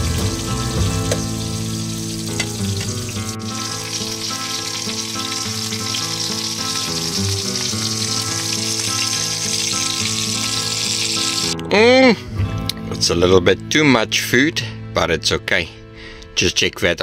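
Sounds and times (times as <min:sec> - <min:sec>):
meat sizzling: 0:00.0 - 0:11.6
background music: 0:00.0 - 0:17.0.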